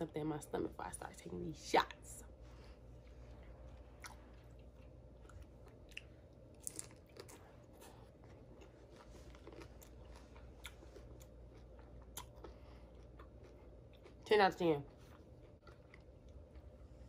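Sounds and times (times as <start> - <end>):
person chewing food: 3.0 - 14.3, 14.9 - 17.0.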